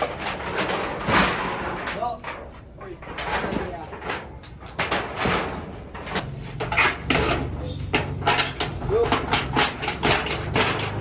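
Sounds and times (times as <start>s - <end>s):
knocks and clatters of objects: 0.0s - 11.0s
voices: 7.1s - 9.5s.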